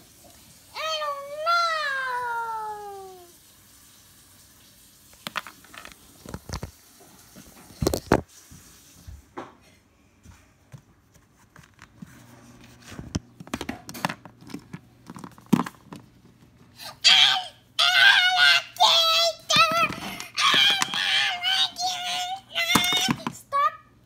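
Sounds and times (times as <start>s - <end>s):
phone being handled: 13.1s - 16.5s.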